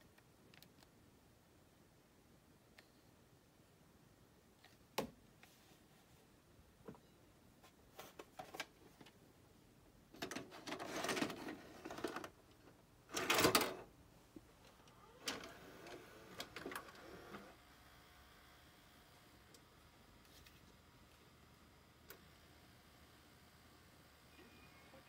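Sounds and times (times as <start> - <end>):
cassette mechanism whirring: 13.1 - 13.9, 14.7 - 17.6.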